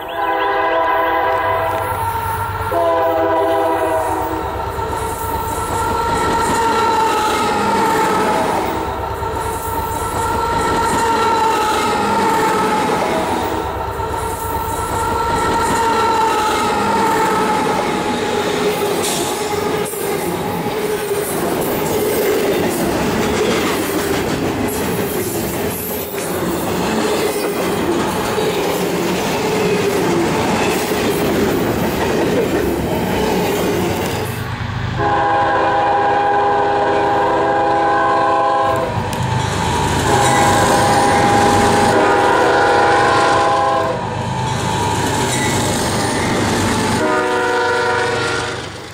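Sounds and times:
diesel locomotive horn blasts: 0.0s - 4.7s, 5.7s - 8.9s, 14.8s - 18.2s, 35.0s - 39.1s, 40.0s - 44.1s, 47.0s - 48.8s
freight train rumbling past: 0.0s - 48.9s.

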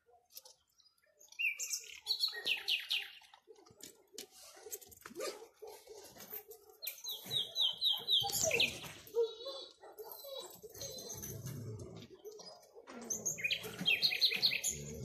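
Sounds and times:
nightingale singing: 1.2s - 3.2s, 13.0s - 15.0s.

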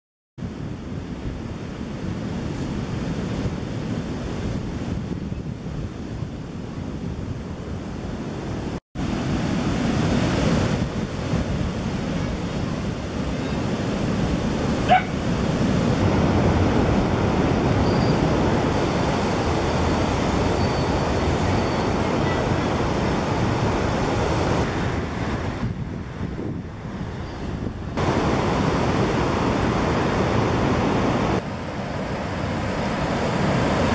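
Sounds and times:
ocean surf: 0.4s - 33.9s
wind on microphone: 0.4s - 33.9s
dog bark: 14.8s - 15.2s.

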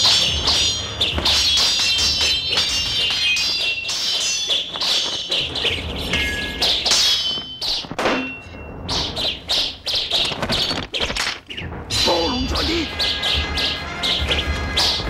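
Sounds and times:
sword blades clashing: 0.0s - 8.7s
thuds: 4.7s - 9.2s.

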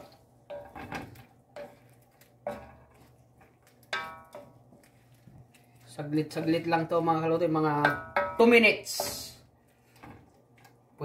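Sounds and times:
wooden spoon stirring in wok: 0.0s - 11.0s
spoon knocking metal pan: 3.8s - 4.6s, 7.5s - 9.4s.

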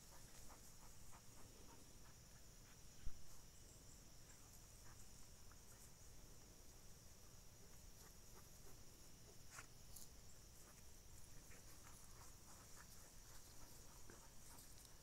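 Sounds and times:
faint insect drone: 0.0s - 15.0s.

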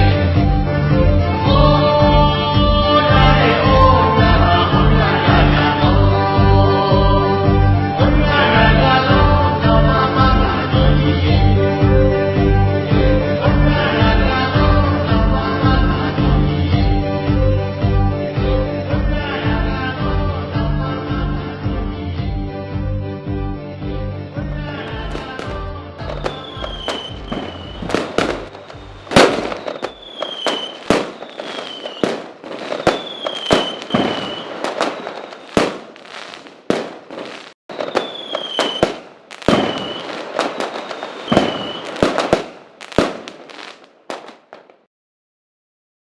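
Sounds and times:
music: 0.0s - 32.0s, 41.3s - 42.1s
fireworks bangs: 24.8s - 44.9s
fireworks falling whistles: 25.0s - 44.9s.

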